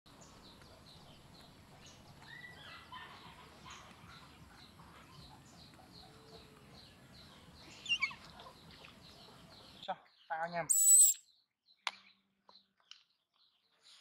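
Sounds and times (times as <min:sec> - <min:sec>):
other faint bird calls: 0:00.1 - 0:14.0
bird chirping high note: 0:10.7 - 0:11.2.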